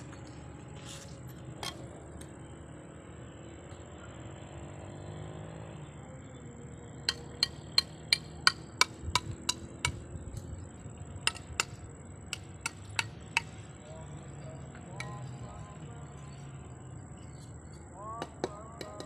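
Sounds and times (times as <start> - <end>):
hammer tapping clay tile: 7.1 - 10.0.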